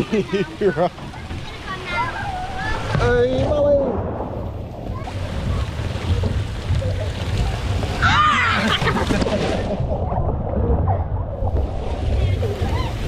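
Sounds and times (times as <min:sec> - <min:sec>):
low rumble: 0:03.4 - 0:08.0, 0:09.2 - 0:13.0.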